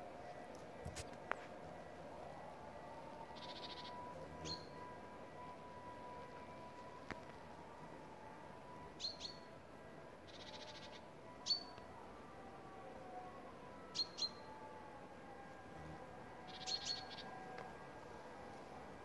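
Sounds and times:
songbird chirping: 3.1 - 5.5, 8.8 - 9.6, 10.2 - 11.9, 13.8 - 14.5, 15.6 - 17.7.

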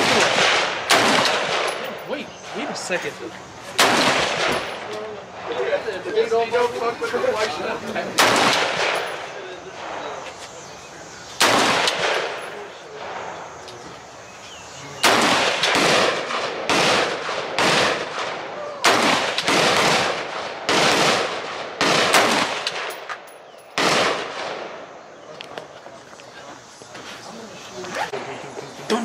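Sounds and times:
rifle shots with echo: 0.0 - 2.8, 3.8 - 5.6, 8.2 - 10.2, 11.4 - 13.6, 15.0 - 25.0.

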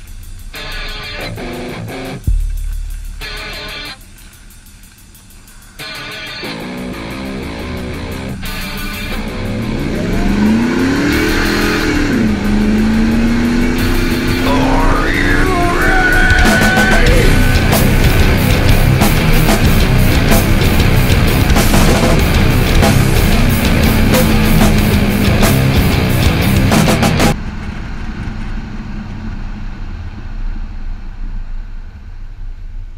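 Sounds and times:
rock music: 0.0 - 27.4
road noise: 0.0 - 32.9
pickup truck engine accelerating: 6.5 - 31.9.

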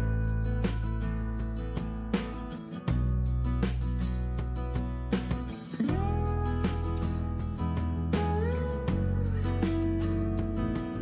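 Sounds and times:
low sustained bass: 0.0 - 2.2, 5.8 - 11.0
plucked guitar notes: 0.0 - 11.0.

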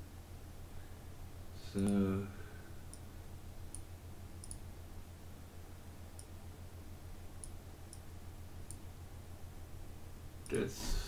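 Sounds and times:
steady low hum: 0.0 - 11.0
computer mouse clicks: 3.7 - 4.6, 6.2 - 6.4, 7.4 - 8.8.

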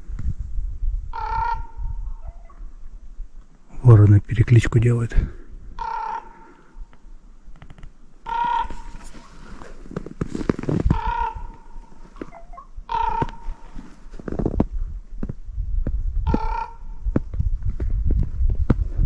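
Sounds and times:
crow calling: 1.1 - 2.6, 5.8 - 7.0, 8.2 - 9.3, 10.9 - 14.0, 16.2 - 17.0.

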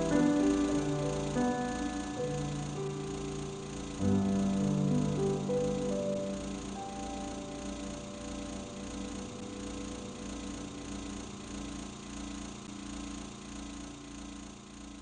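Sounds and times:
held musical note: 0.0 - 11.0
low pulsing machine hum: 0.0 - 15.0.

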